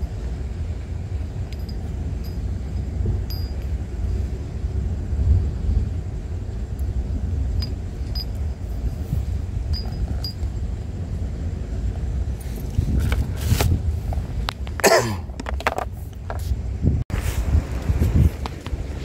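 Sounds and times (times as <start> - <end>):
wind buffeting microphone: 0.0 - 19.0
light sharp clinks: 1.5 - 3.8, 7.6 - 9.1, 9.7 - 10.5.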